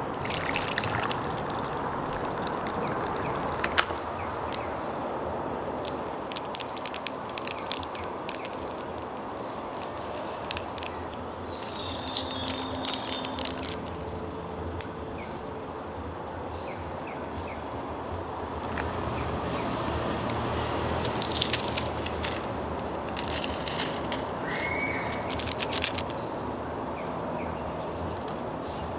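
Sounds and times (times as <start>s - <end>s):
plastic sachets crinkling: 0.0s - 4.6s, 5.8s - 14.2s, 19.8s - 26.2s, 27.8s - 28.5s
outdoor background hiss: 0.0s - 28.9s.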